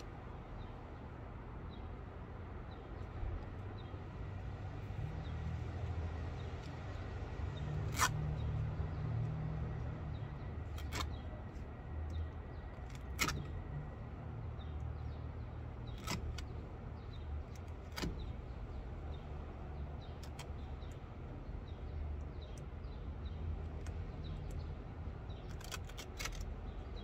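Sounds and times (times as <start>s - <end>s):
fasteners snapping out of wood: 7.8s - 8.6s, 10.6s - 11.3s, 12.8s - 13.7s, 15.8s - 18.4s, 20.1s - 20.9s, 25.3s - 26.6s.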